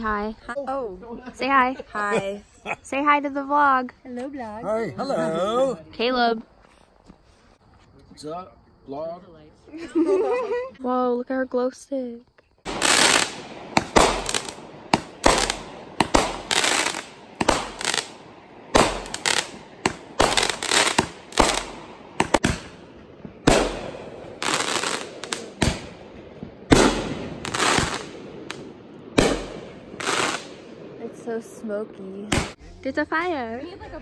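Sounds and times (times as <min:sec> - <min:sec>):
fireworks bangs: 0:12.6 - 0:32.7
fireworks crackling: 0:12.6 - 0:34.0.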